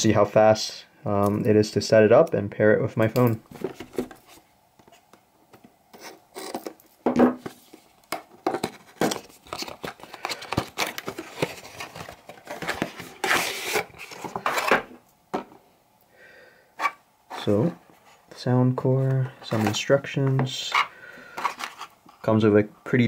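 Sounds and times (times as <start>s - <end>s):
cardboard scraping and rubbing: 7.4s - 14.9s.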